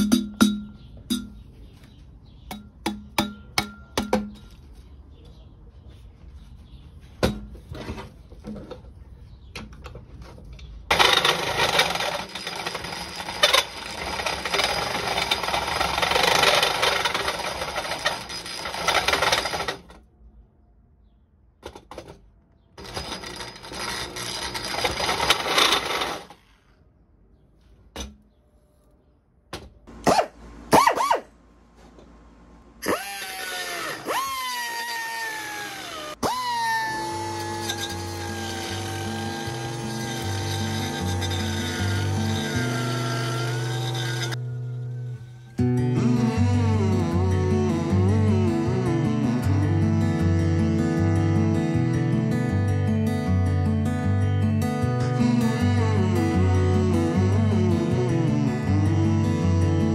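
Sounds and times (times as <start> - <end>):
electric drill cutting metal: 10.9 - 19.9, 22.8 - 26.3, 32.8 - 44.4.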